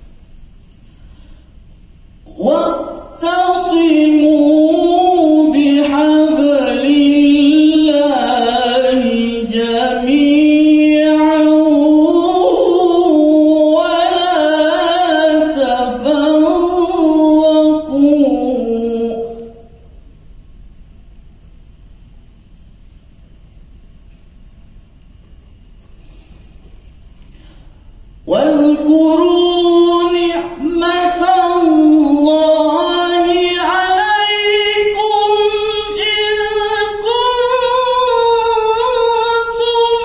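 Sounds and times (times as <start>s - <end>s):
man reciting melodically into microphone: 2.2s - 19.9s, 28.2s - 40.0s.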